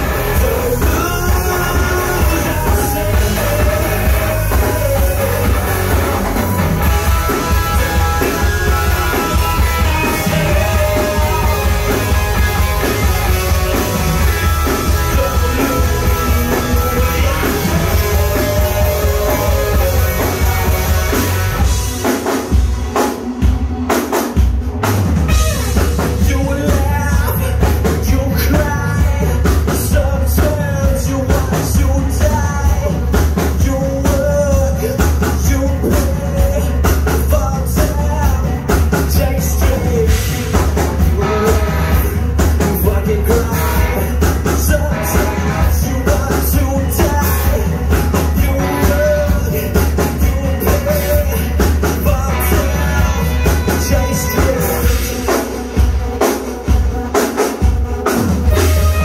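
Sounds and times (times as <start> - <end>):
man singing: 0.0 - 23.1, 25.3 - 56.0
bass guitar: 0.0 - 59.0
drum kit: 0.0 - 59.0
electric guitar: 0.0 - 59.0.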